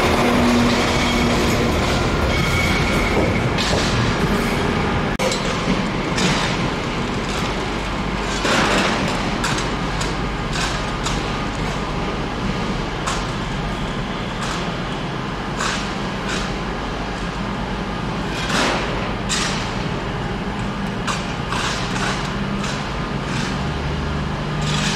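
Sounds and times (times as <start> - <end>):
train engine hum: 0.0 - 24.9
sharp knocks from track: 2.3 - 4.4.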